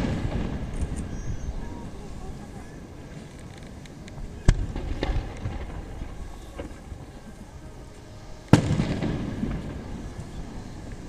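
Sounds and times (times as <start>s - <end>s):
firework cracks and pops: 0.0s - 1.2s, 3.2s - 7.0s, 8.4s - 11.0s
firework bangs: 0.0s - 1.6s, 4.4s - 7.1s, 8.4s - 11.0s.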